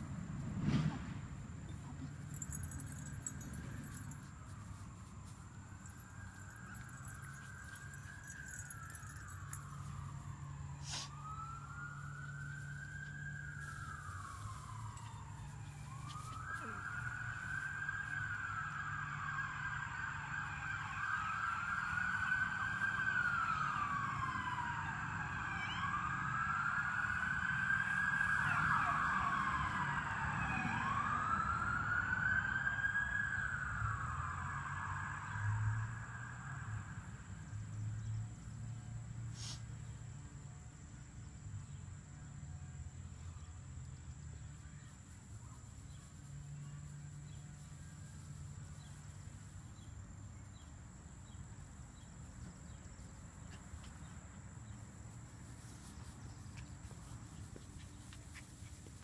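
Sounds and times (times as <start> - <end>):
siren wailing: 2.2 - 37.2.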